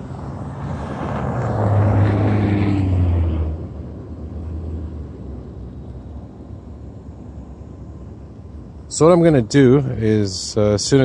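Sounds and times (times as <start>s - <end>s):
vehicle passing by: 0.0s - 6.5s.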